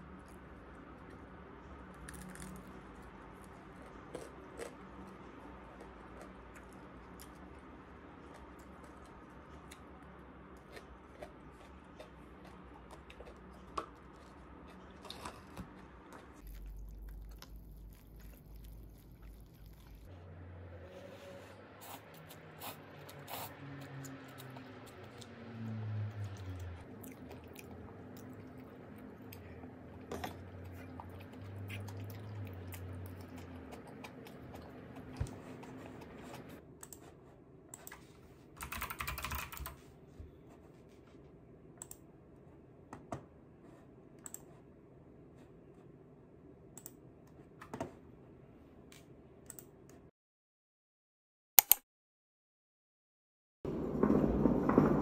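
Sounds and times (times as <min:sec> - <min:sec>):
typing on computer keyboard: 0:38.6 - 0:39.8.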